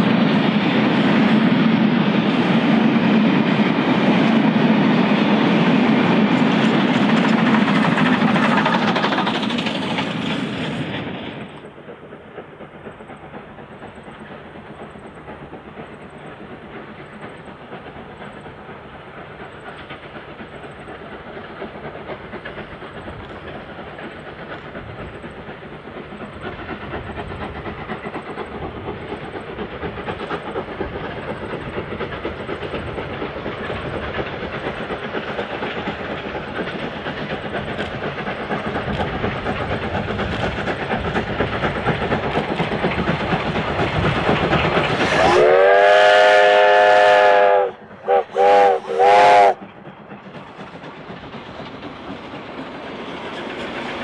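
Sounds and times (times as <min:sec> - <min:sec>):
steam locomotive exhaust: 0:00.0 - 0:54.0
train wheel clatter: 0:00.0 - 0:54.0
steam whistle blasts: 0:45.0 - 0:49.6.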